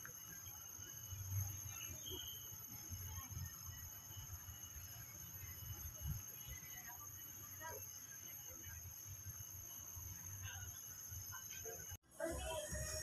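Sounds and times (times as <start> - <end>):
faint chirps: 0.0 - 13.0
steady high-pitched whine: 0.0 - 13.0.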